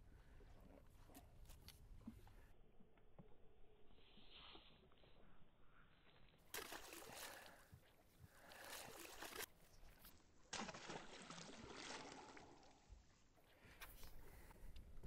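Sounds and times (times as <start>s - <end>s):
water splashing and sloshing: 6.3s - 14.5s.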